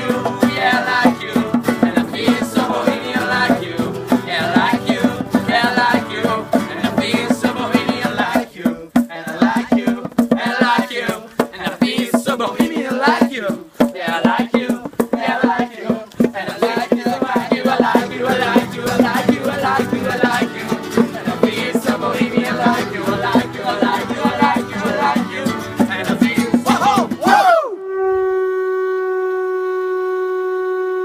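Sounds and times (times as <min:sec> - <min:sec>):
hand percussion: 0:00.0 - 0:27.4
strummed acoustic guitars: 0:00.0 - 0:27.4
long vuvuzela note: 0:27.3 - 0:31.0.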